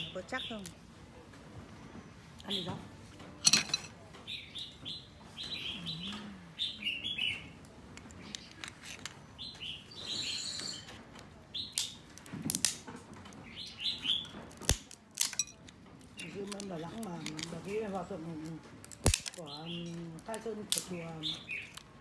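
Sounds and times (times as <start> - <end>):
birds chirping: 0.0 - 0.9, 1.7 - 12.1, 13.3 - 14.6, 19.4 - 21.9
crab shell cracking in cracker: 14.4 - 17.6, 18.7 - 19.4.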